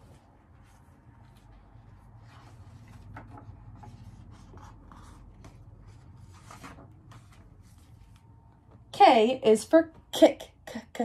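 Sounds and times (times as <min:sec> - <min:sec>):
book pages turning: 0:00.0 - 0:08.8.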